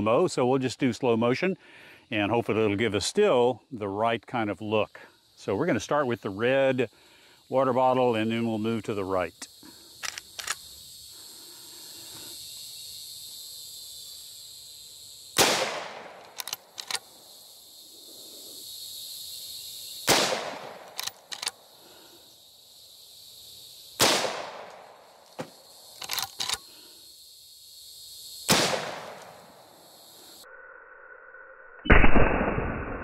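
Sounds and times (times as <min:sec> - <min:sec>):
high insect buzz: 0:04.6 - 0:31.8
small clicks: 0:10.0 - 0:10.7, 0:16.2 - 0:17.2, 0:20.8 - 0:21.6, 0:24.7 - 0:26.7
rifle shots with echo: 0:15.4 - 0:16.2, 0:20.1 - 0:20.9, 0:24.0 - 0:24.7, 0:28.5 - 0:29.2, 0:31.9 - 0:32.8.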